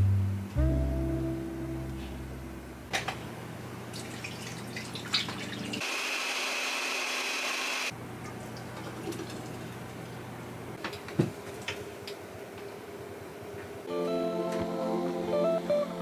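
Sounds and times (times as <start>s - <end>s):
blender whirring: 5.8s - 7.9s.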